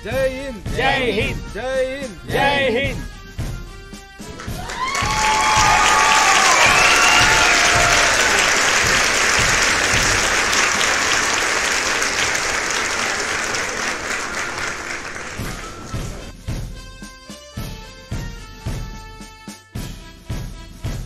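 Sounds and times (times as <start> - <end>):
music: 0.0 - 21.0
crowd applauding: 4.2 - 16.3.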